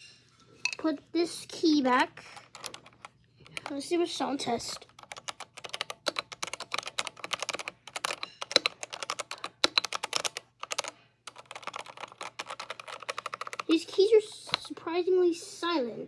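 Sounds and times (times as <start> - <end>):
fast typing on mechanical keyboard: 2.3 - 14.7.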